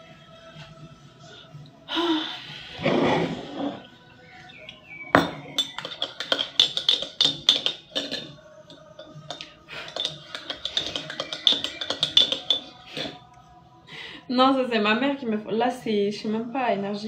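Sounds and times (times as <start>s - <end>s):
background music: 0.0s - 17.0s
spoon clinking in ceramic mug: 4.4s - 13.2s.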